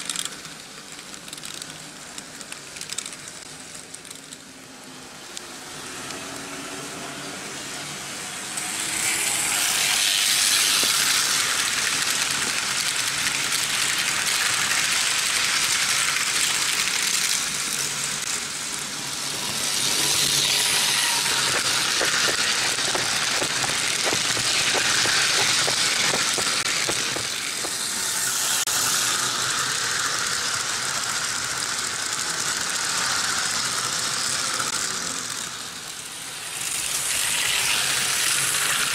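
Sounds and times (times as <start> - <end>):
model trains rattling rumble: 7.7 - 38.9
rapid clicking: 21.2 - 28.0.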